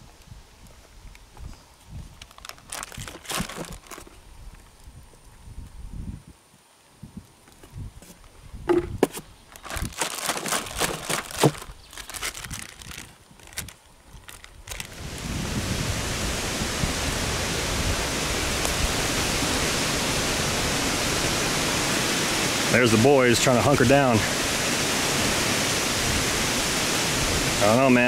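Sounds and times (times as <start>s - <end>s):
plastic bag crinkling: 2.2s - 4.2s, 9.5s - 15.1s
heavy rain hissing: 14.7s - 28.0s.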